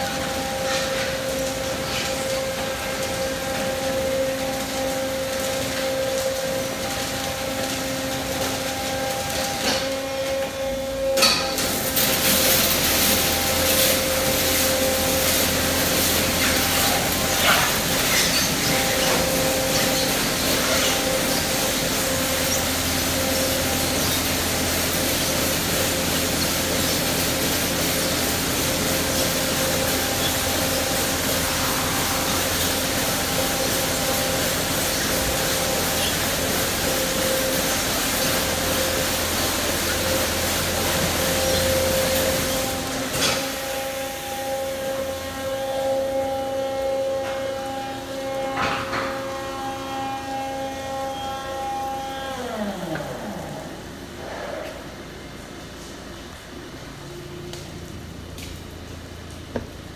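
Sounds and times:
high-pressure water jets hissing: 0.0s - 52.2s
car wash motors humming: 0.0s - 59.9s.

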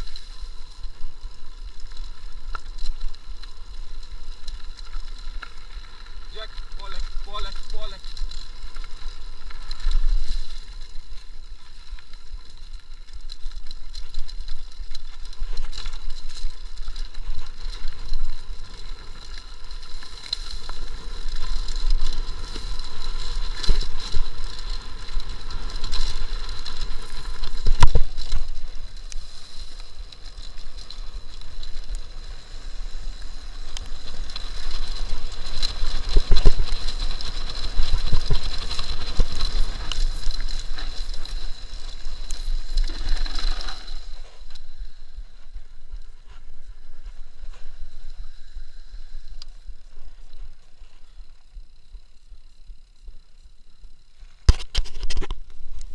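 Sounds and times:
tyres running on dirt: 0.0s - 55.2s
bike rattling over bumps: 0.0s - 55.9s.

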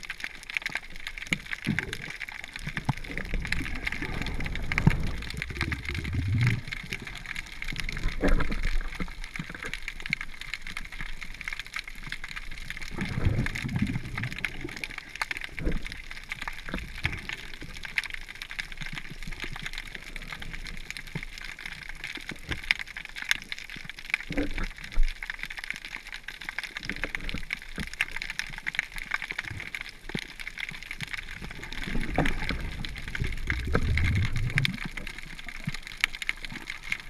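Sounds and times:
fine steady crackle: 0.0s - 37.0s
underwater water sloshing: 0.2s - 18.4s, 27.0s - 37.0s.

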